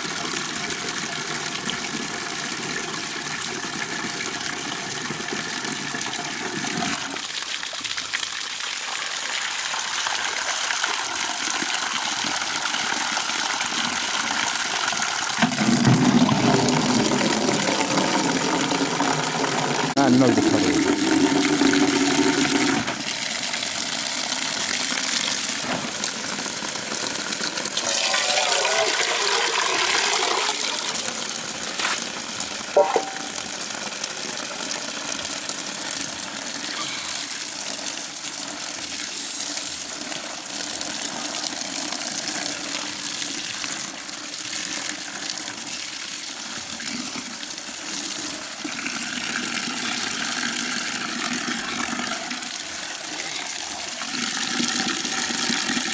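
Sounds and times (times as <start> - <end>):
water pouring into plastic bucket: 0.0 - 55.9.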